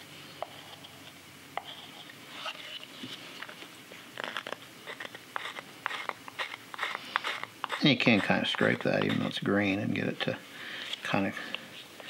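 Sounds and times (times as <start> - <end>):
knife shaving wood: 4.2 - 9.4.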